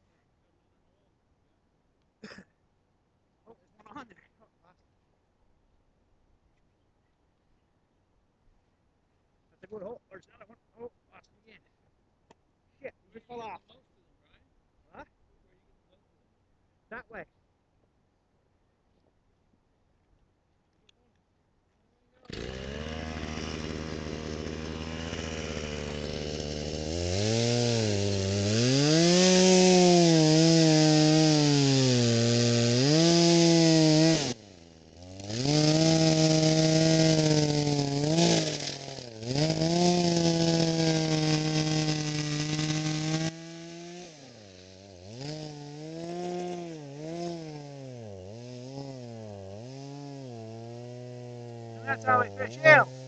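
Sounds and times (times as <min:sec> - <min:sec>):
chainsaw cutting ice: 0:22.2 - 0:53.0.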